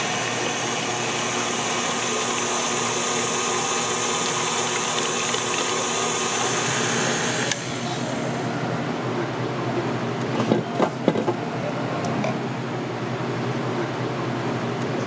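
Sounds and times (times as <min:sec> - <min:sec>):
stand mixer motor humming: 0:00.0 - 0:07.8
whisk beating batter in bowl: 0:01.7 - 0:06.6.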